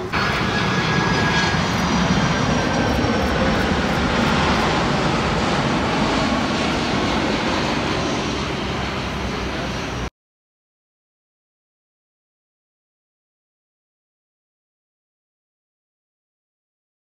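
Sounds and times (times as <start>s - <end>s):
faint high whine: 0.0s - 10.1s
jet engine rush: 0.0s - 10.1s.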